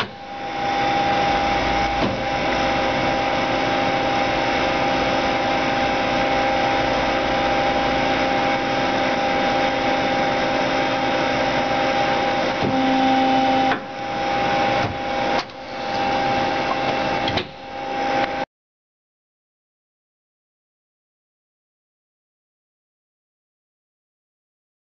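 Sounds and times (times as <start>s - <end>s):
lathe running with steady hum: 0.0s - 18.4s.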